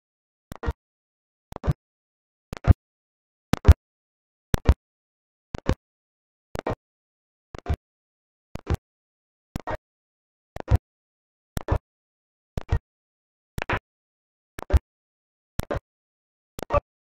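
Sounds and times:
click followed by dull thud: 14.6s - 14.8s.

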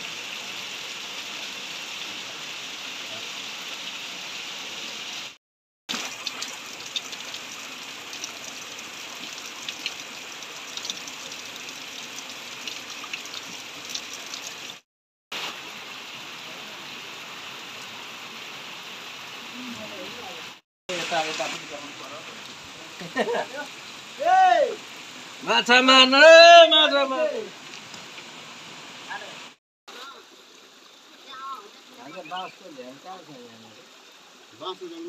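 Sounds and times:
sharp water drops: 5.9s - 14.8s
water trickling down rock: 5.9s - 14.8s.

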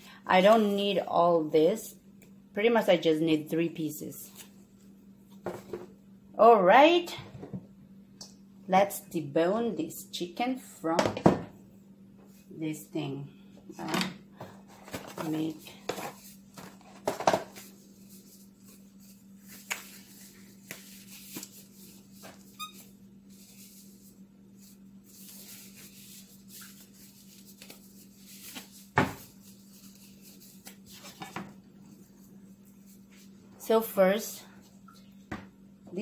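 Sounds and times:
steady low hum: 0.0s - 36.0s
plastic gloves rustling: 14.6s - 33.5s.

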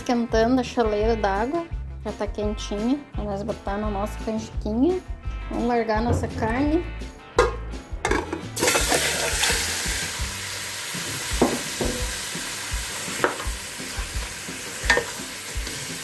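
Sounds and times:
meat sizzling in hot fat: 8.6s - 16.0s
spoon knocking against pot: 11.4s - 12.1s, 14.8s - 15.2s.

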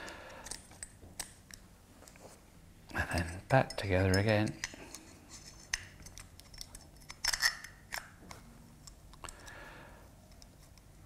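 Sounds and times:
small metal clicks and taps: 0.4s - 2.2s, 3.2s - 5.0s.

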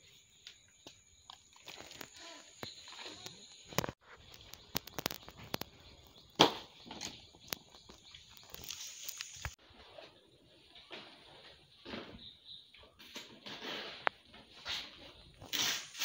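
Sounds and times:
banana leaves rustling: 8.3s - 9.6s.

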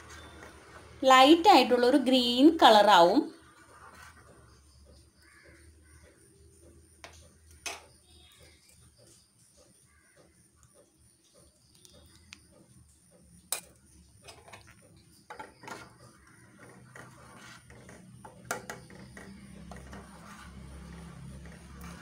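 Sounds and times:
spoon clinking and scraping a pot: 13.5s - 22.0s.

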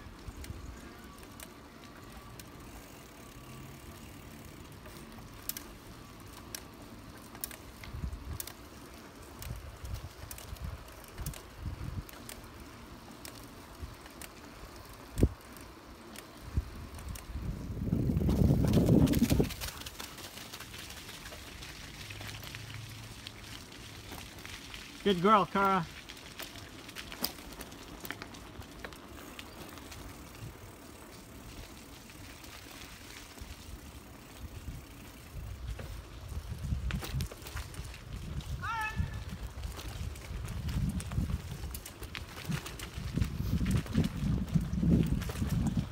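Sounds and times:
bicycle rattles and clicks: 0.0s - 45.9s
bicycle tyre rumble: 0.0s - 45.9s
wind noise: 9.3s - 12.3s, 16.4s - 20.1s, 33.4s - 45.9s.

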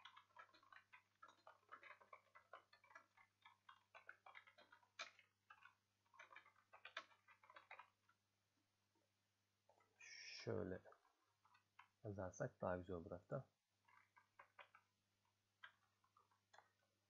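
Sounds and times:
keyboard typing: 0.0s - 8.2s.

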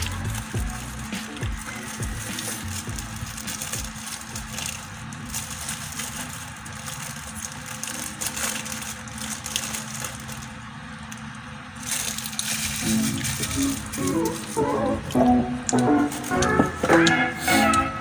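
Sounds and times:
food being chewed: 0.0s - 17.9s
paper napkin crinkling: 0.0s - 18.0s.

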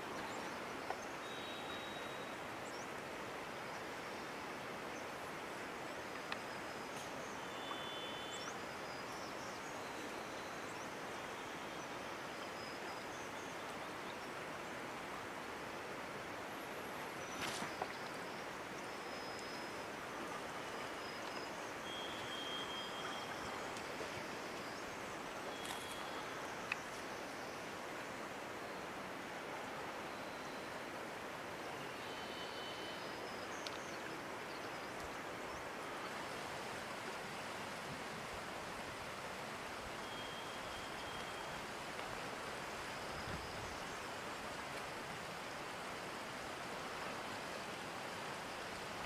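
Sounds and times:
steady outdoor hiss: 0.0s - 49.0s
brief rustle: 17.3s - 18.0s, 25.6s - 26.1s.

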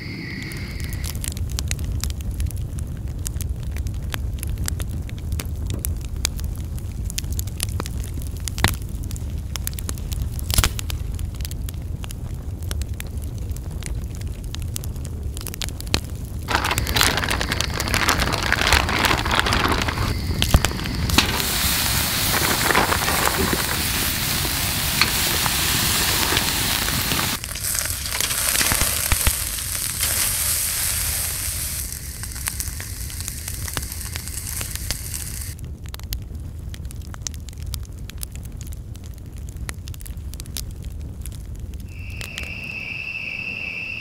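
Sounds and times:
campfire crackling with pops: 0.1s - 44.0s
steaks sizzling on a grill: 20.9s - 35.5s.

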